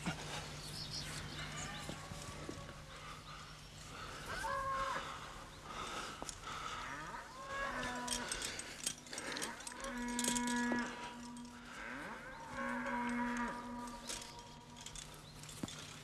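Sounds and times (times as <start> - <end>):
cattle mooing: 4.3 - 5.2, 6.7 - 14.8.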